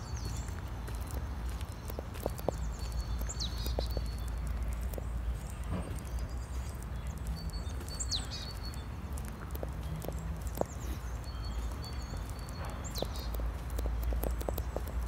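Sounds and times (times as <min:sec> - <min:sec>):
birds chirping: 0:00.0 - 0:15.0
footsteps on gritty path: 0:00.0 - 0:15.0.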